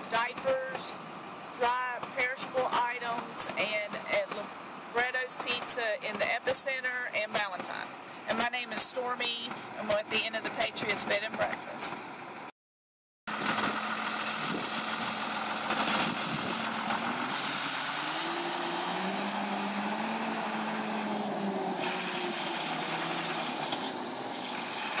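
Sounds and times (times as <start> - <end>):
truck engine driving past: 13.3 - 25.0.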